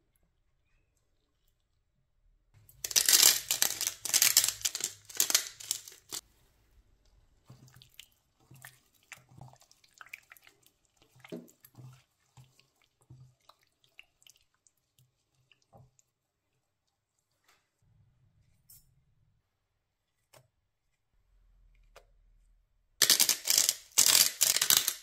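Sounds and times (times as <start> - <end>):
spice grinder crunching: 2.8 - 6.2, 23.0 - 25.0
wet squelches of marinade: 7.3 - 17.8.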